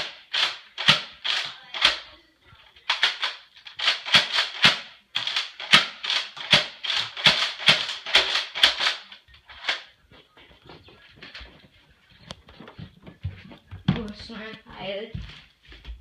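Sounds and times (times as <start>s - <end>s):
toy blaster pump clacks: 0.0s - 2.0s, 2.9s - 9.8s.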